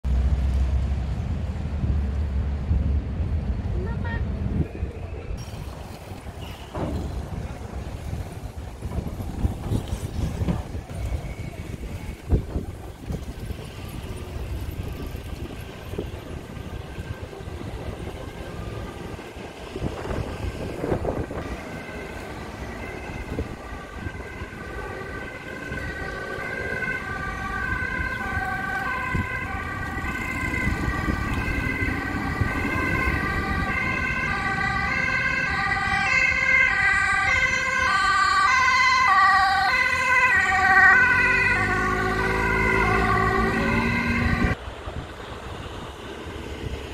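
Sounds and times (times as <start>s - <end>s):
street traffic rumble: 0.0s - 46.9s
emergency vehicle siren: 7.5s - 44.6s.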